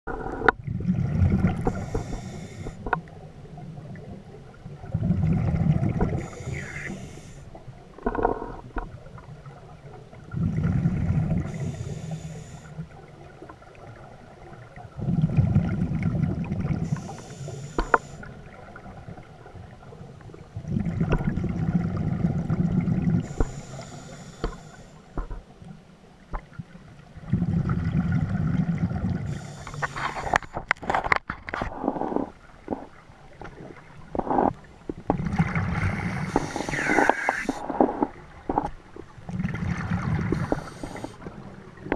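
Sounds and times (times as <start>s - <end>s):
exhaled bubbles rumbling: 0.1s - 12.1s, 12.9s - 17.4s, 18.2s - 23.7s, 27.1s - 41.9s
diver breathing through regulator: 1.6s - 2.9s, 6.1s - 7.6s, 11.4s - 12.8s, 16.8s - 18.3s, 23.2s - 25.1s, 29.3s - 30.6s, 35.9s - 38.1s, 40.2s - 41.3s.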